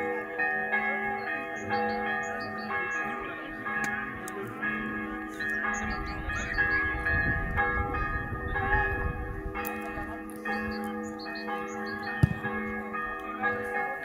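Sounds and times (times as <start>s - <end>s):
bells ringing: 0.0s - 14.0s
sharp thump: 12.2s - 12.6s.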